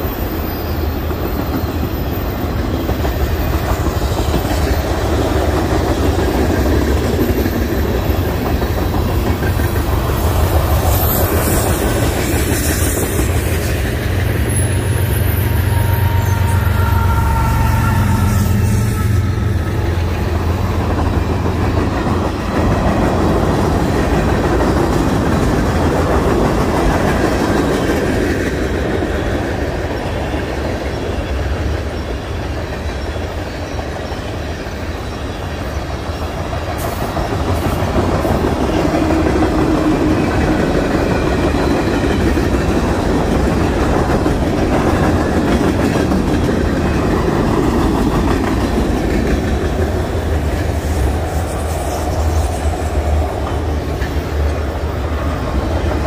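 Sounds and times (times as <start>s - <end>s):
steel wheels on rails: 0.0s - 56.0s.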